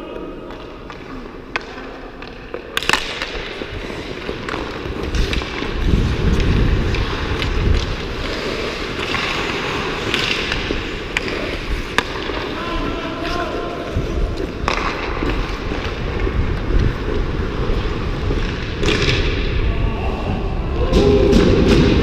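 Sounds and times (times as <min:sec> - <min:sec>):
hockey sticks and puck clacking: 0:00.0 - 0:19.7
skate blades scraping ice: 0:02.6 - 0:19.4.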